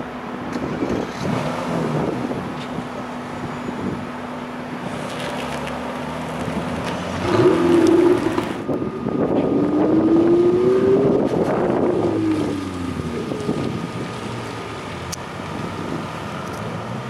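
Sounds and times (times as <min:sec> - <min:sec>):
car pulling away: 0:00.5 - 0:17.0
sports car engine revving: 0:00.6 - 0:02.5, 0:04.8 - 0:17.0.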